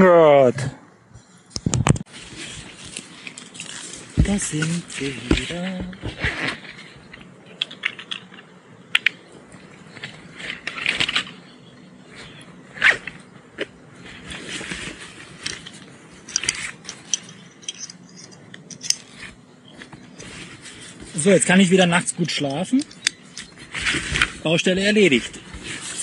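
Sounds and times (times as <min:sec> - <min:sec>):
litter rustling and scraping: 0:22.9 - 0:24.5.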